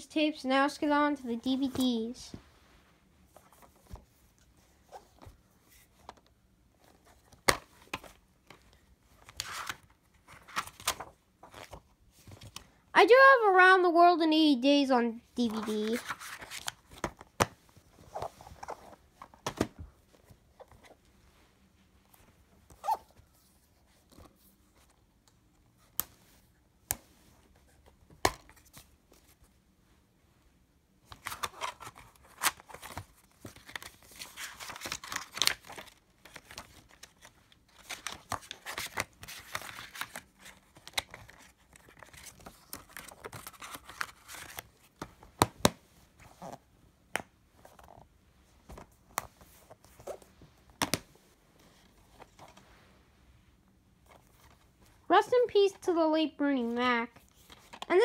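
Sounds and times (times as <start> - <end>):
faint handling noise: 31.0 - 55.5.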